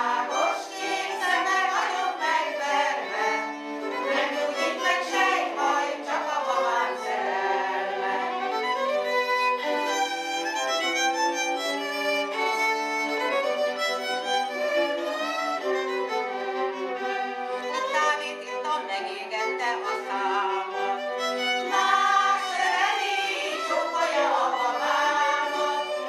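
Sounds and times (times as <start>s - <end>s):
women singing folk song: 0.0s - 8.6s, 17.7s - 21.0s, 21.6s - 26.0s
violin: 0.0s - 26.0s.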